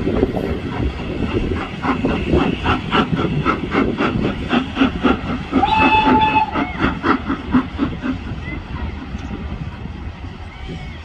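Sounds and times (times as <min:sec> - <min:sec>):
steam locomotive chuffing: 0:00.0 - 0:11.0
steam whistle: 0:05.6 - 0:06.7.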